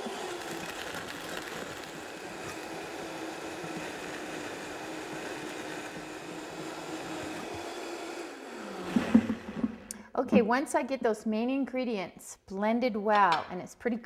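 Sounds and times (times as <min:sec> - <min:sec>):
blender motor running: 0:00.0 - 0:09.9.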